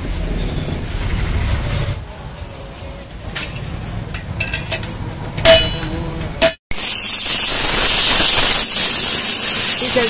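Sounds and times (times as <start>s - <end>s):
pressure washer jet hissing: 6.7s - 10.0s.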